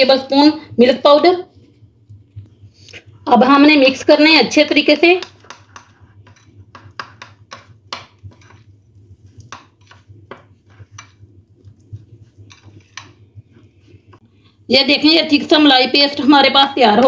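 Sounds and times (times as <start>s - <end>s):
spoon scraping glass bowl: 5.2s - 8.7s, 9.3s - 13.2s.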